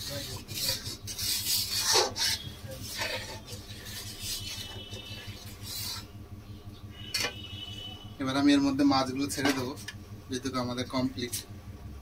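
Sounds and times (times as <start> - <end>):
spatula scraping metal pan: 0.0 - 6.1.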